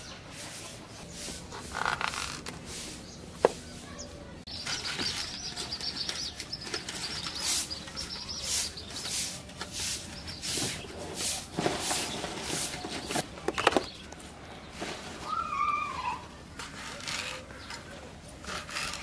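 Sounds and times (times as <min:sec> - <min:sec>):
birds chirping: 0:00.0 - 0:16.4, 0:17.0 - 0:19.0.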